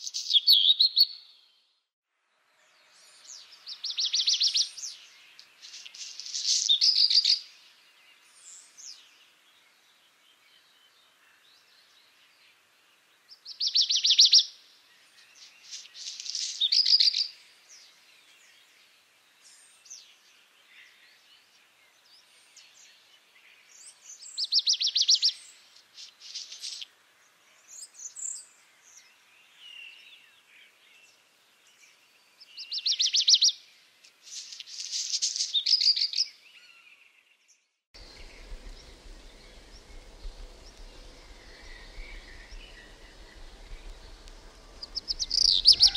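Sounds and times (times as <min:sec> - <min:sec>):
bird singing: 0:34.4 - 0:45.9
low hum: 0:38.0 - 0:45.9
steady hiss: 0:38.0 - 0:45.9.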